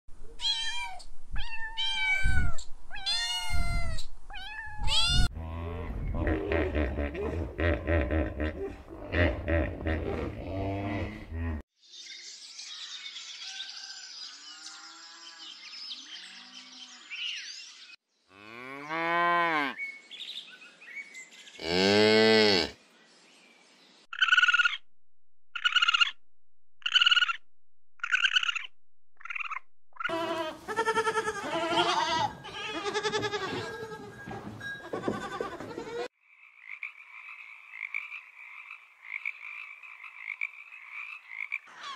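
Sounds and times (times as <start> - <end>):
cattle mooing: 5.3 - 11.6, 21.6 - 22.8
birds chirping: 25.6 - 26.2, 26.8 - 27.4, 28.0 - 30.1
goat bleating: 30.1 - 36.1.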